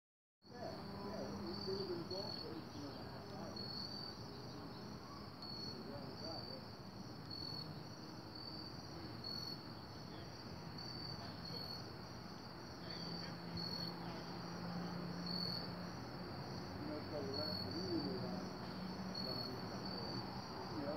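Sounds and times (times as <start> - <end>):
crickets chirping: 0.4 - 20.9.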